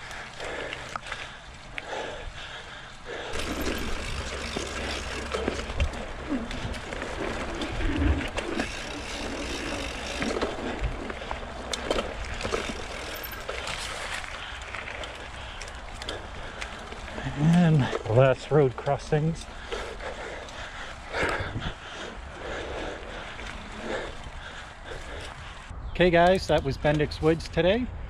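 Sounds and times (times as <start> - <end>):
bike tyres rolling on track: 0.0 - 27.6
clicks and knocks from bike: 3.3 - 18.2.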